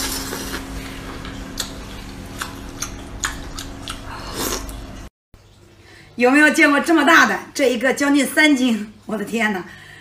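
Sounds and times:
wet chewing mouth sounds: 0.1 - 4.9.

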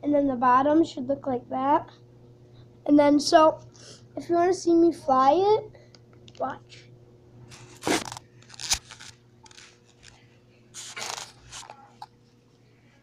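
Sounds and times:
camera handling scrapes: 7.5 - 10.2, 10.8 - 11.9.

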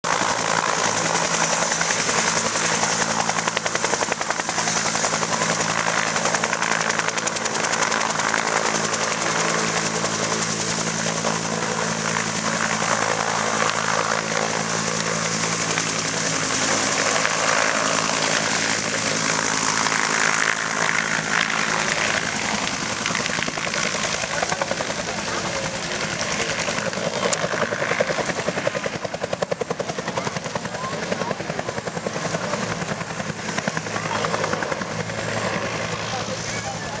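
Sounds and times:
helicopter rotor chopping: 0.0 - 37.0.

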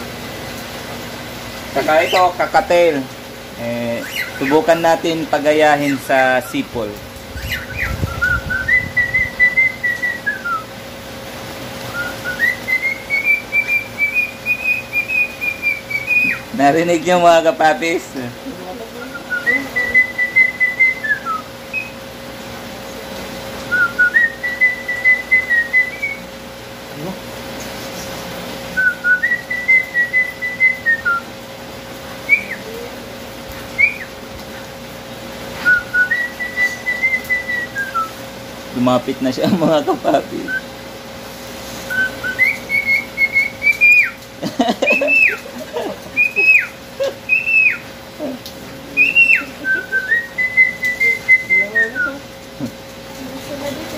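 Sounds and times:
man whistling: 7.4 - 10.7, 11.9 - 16.4, 19.2 - 22.0, 23.7 - 26.2, 28.8 - 31.2, 33.8 - 34.1, 35.6 - 38.1, 40.4 - 40.7, 41.9 - 44.2, 44.9 - 45.4, 46.2 - 46.7, 47.3 - 47.8, 49.0 - 52.2.

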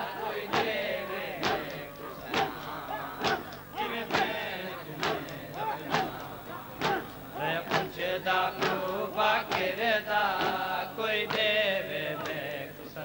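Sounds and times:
men chanting in unison: 0.0 - 13.0
chest-beating slaps: 1.4 - 4.4, 5.0 - 8.0.

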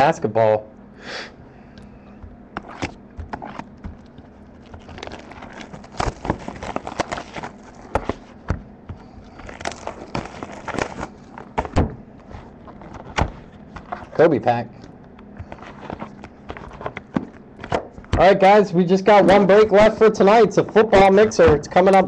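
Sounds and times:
cardboard box crackling and rustling: 2.7 - 8.4, 9.0 - 14.1.

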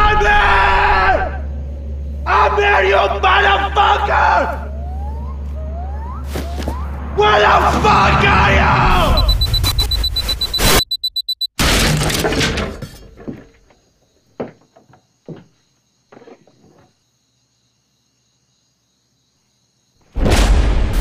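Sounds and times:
loud cinematic hit: 20.2 - 21.0.

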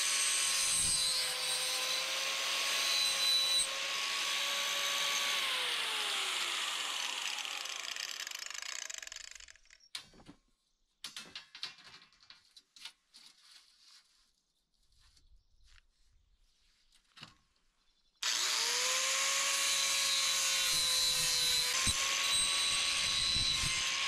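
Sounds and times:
power tool motor winding down: 0.7 - 9.7, 18.2 - 24.0
irregular clicks and knocks: 11.0 - 13.0.

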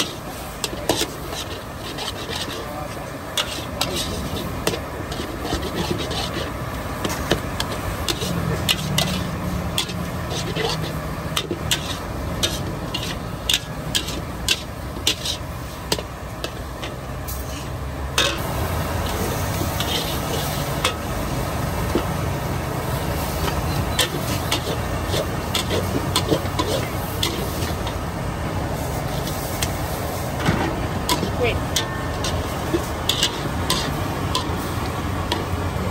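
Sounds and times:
metal utensils scraping a pan: 0.0 - 18.4, 19.0 - 28.1, 28.7 - 35.9
food sizzling in a pan: 3.2 - 30.4.

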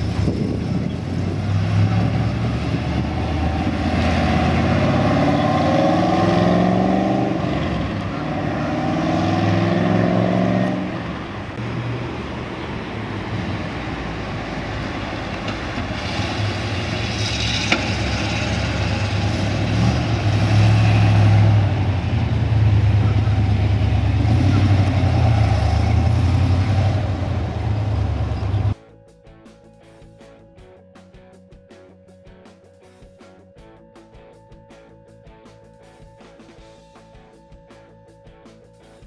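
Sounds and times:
car engine accelerating: 0.0 - 28.8.

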